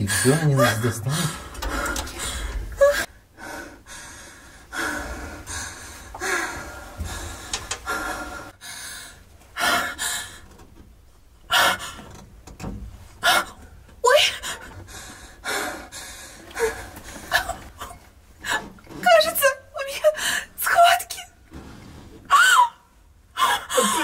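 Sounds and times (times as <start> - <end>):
woman breathing hard and gasping: 0.0 - 10.4, 14.3 - 17.8, 23.4 - 24.0
woman groaning: 23.4 - 24.0.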